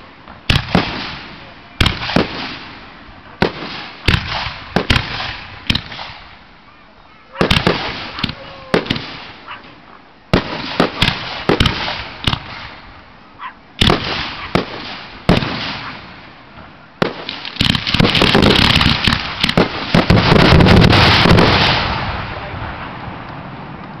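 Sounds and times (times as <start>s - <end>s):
firework shells bursting: 3.4s - 6.4s, 10.3s - 12.9s, 17.0s - 21.9s.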